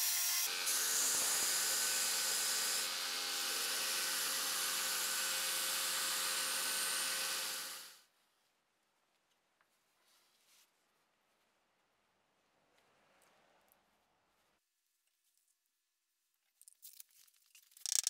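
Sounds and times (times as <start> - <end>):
belt grinder grinding metal: 0.0 - 7.9.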